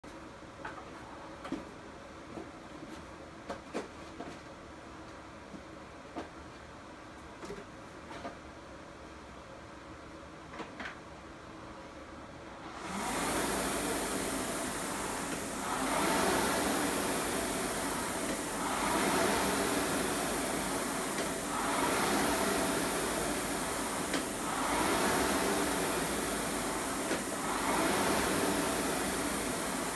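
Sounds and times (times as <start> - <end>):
rowing machine flywheel whooshing: 12.6 - 29.9.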